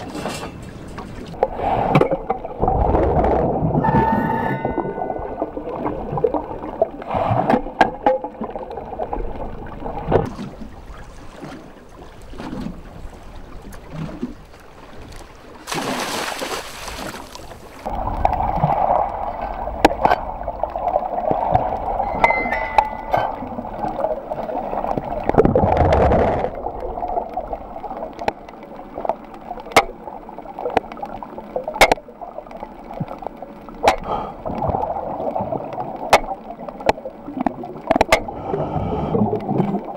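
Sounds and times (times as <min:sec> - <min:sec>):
muffled rushing water: 0:00.0 - 0:39.9
sharp clicks underwater: 0:17.3 - 0:38.4
rush of bubbles: 0:17.8 - 0:22.1.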